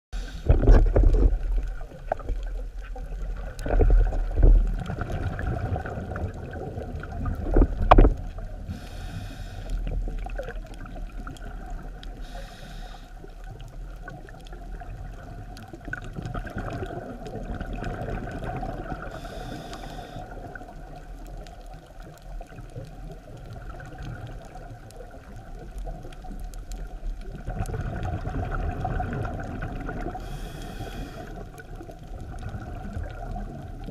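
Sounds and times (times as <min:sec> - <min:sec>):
exhaled bubbles rumbling underwater: 0:00.2 - 0:33.9
hissing breaths through regulator: 0:08.7 - 0:10.0, 0:12.2 - 0:13.3, 0:19.1 - 0:20.4, 0:30.2 - 0:31.5.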